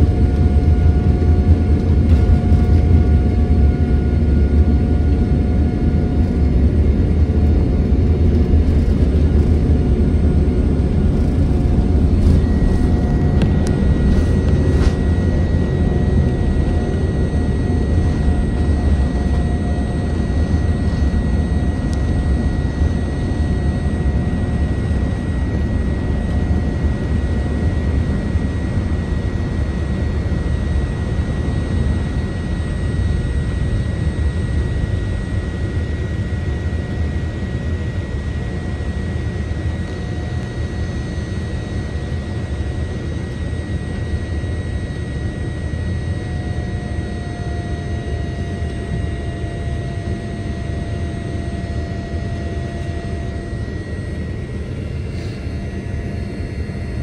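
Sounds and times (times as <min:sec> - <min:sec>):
jet engine high whine: 0:00.0 - 0:57.0
jet engines rumbling: 0:00.0 - 0:57.0.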